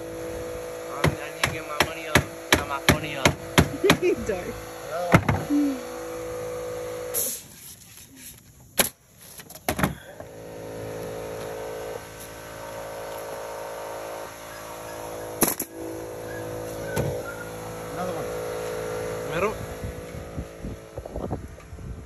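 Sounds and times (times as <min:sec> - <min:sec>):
steady motor hum: 0:00.0 - 0:08.7, 0:09.7 - 0:22.0
sharp knocks: 0:05.1 - 0:05.5.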